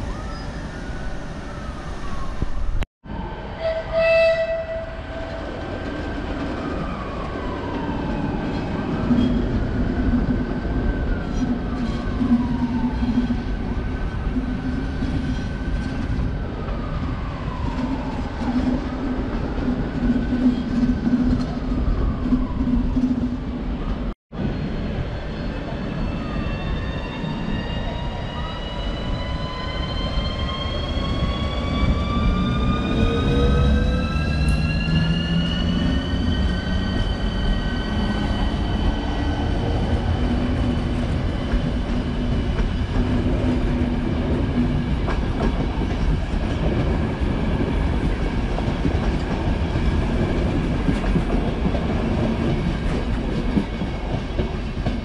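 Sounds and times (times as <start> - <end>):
train low hum: 0.0 - 55.0.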